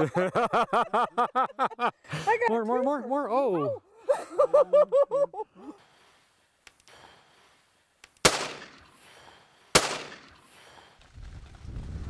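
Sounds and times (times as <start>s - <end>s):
shotgun shots echoing: 8.2s - 9.1s, 9.7s - 10.7s.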